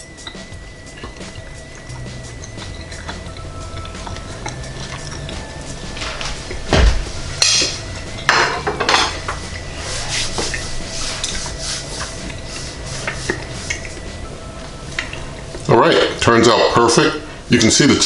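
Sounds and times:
dull thump: 6.6s - 7.2s.

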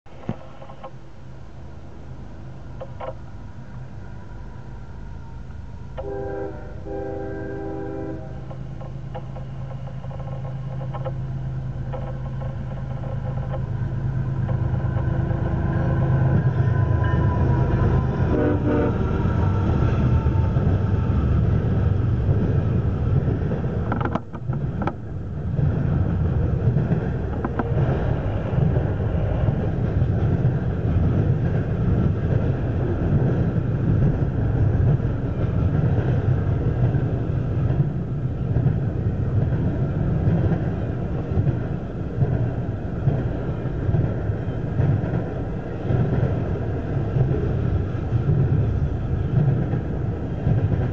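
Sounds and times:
freight train rumble and wheel clatter: 0.0s - 50.9s
locomotive horn: 6.0s - 8.6s, 14.9s - 19.3s.

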